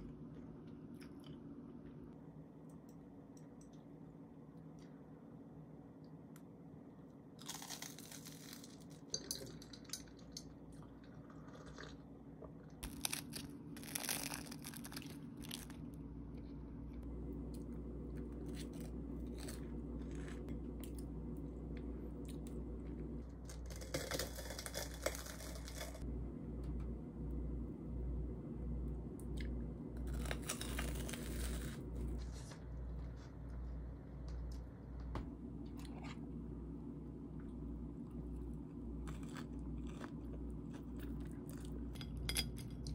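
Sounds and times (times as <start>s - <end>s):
low steady hum: 0.0s - 42.9s
crunching and chewing: 7.4s - 21.1s, 21.7s - 26.0s, 29.3s - 32.3s, 38.0s - 42.9s
crispy crust tearing: 12.8s - 15.9s, 23.4s - 26.0s, 30.0s - 31.9s.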